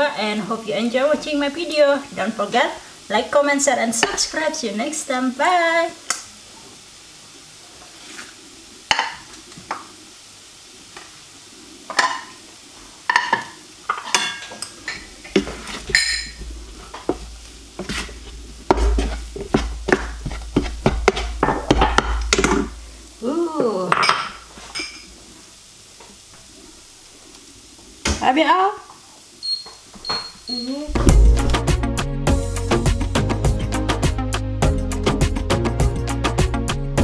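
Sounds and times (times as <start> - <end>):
spatula scraping in frying pan: 13.2 - 22.8.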